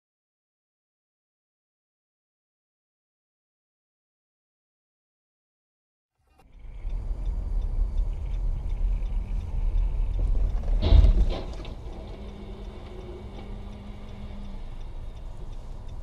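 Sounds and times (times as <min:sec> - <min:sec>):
car road and engine rumble: 0:06.3 - 0:16.0.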